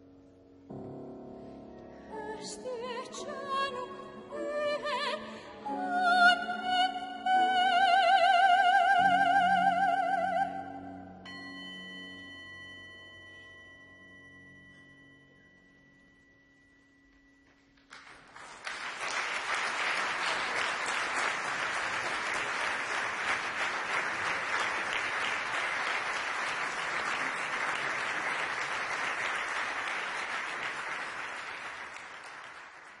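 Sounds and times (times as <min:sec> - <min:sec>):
singing bowl ringing: 0:11.2 - 0:17.4
audience applause: 0:17.9 - 0:33.0.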